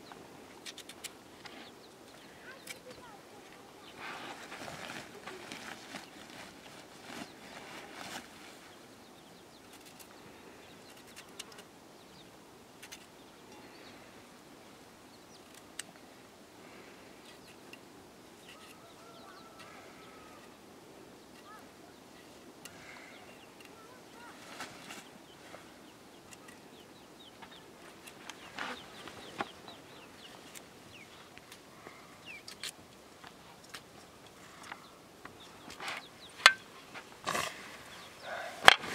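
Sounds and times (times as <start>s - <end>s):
faint bird chirps: 1.4s - 15.9s, 16.7s - 32.7s, 33.6s - 38.6s
plastic sack rustling: 4.0s - 8.6s
chicks cheeping: 28.4s - 31.2s.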